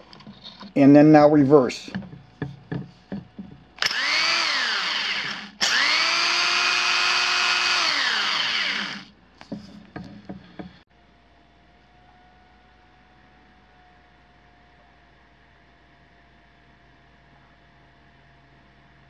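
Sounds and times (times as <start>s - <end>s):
hammer drill motor whining: 3.8s - 9.1s.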